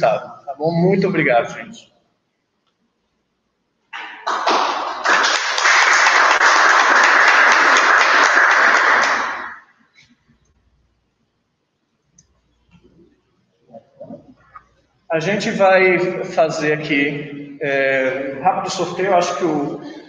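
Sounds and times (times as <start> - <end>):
small group applauding: 3.9 - 9.8.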